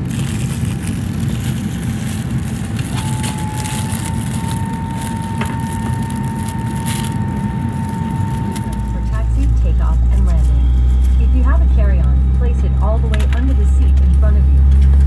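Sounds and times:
high whine: 0.0s - 15.0s
vehicle rumble: 0.0s - 15.0s.

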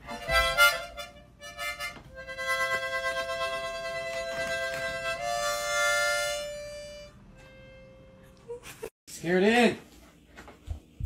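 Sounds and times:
harmonica chords: 0.0s - 8.4s.

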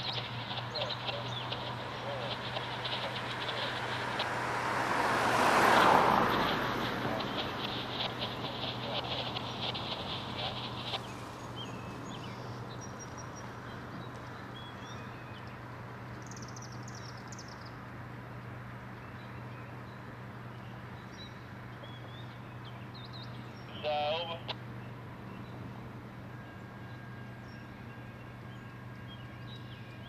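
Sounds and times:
wash of noise: 0.0s - 12.6s
rapid pulsing buzz: 0.0s - 14.6s
songbirds chirping: 0.0s - 30.0s
steady low hum: 0.0s - 30.0s.

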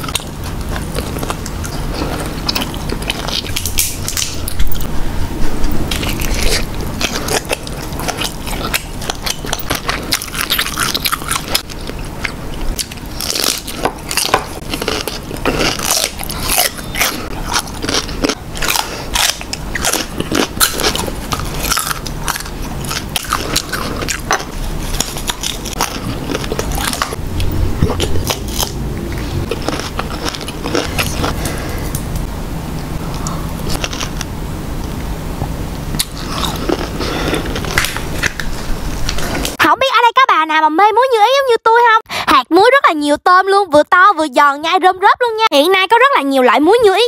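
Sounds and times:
crunching bites and chewing: 0.0s - 4.8s, 5.8s - 32.2s, 33.1s - 34.3s, 35.9s - 39.6s
crisp crackles: 5.9s - 27.2s.

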